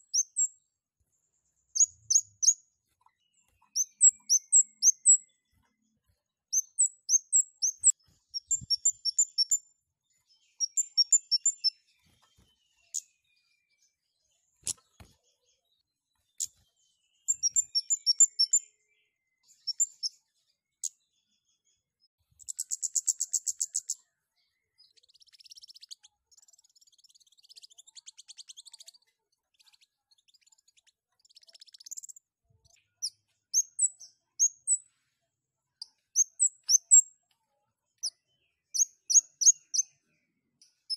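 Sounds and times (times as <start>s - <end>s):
buzzy bird trill: 1.8s - 5.3s, 6.5s - 9.6s, 10.5s - 13.1s, 17.2s - 18.6s
scratchy bird twittering: 1.8s - 5.3s, 6.5s - 9.6s, 10.6s - 13.1s, 17.2s - 18.6s, 24.8s - 32.2s.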